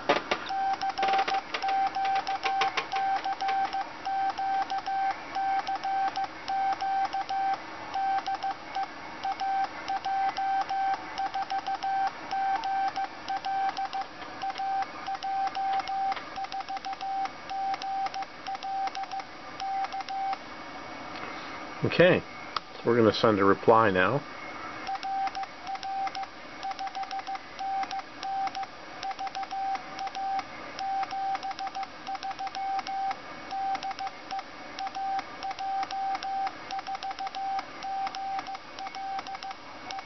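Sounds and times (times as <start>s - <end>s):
morse code tone: 0.5s - 20.4s.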